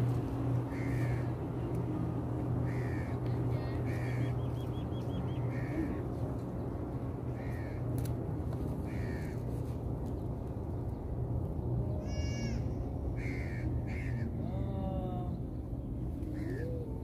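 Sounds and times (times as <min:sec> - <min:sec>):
steady low hum: 0:00.0 - 0:17.0
crow cawing: 0:00.7 - 0:01.3, 0:02.7 - 0:03.2, 0:03.9 - 0:04.3, 0:05.5 - 0:05.9, 0:07.4 - 0:07.8, 0:08.9 - 0:09.4, 0:12.0 - 0:14.4.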